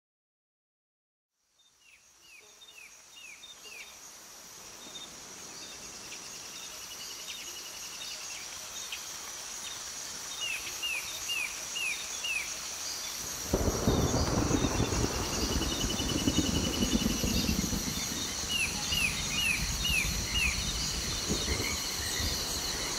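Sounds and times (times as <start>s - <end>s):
high insect drone: 1.6s - 22.9s
thunder rumble: 13.3s - 22.9s.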